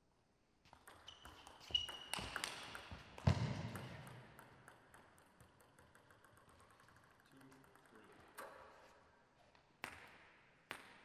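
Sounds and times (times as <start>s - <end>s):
table tennis ball clicking: 0.8s - 8.7s.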